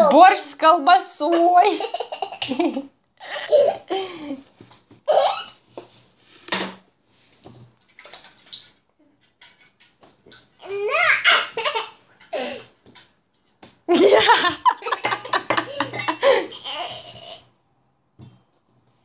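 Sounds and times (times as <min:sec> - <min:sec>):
small child laughing: 0:01.7 - 0:03.9.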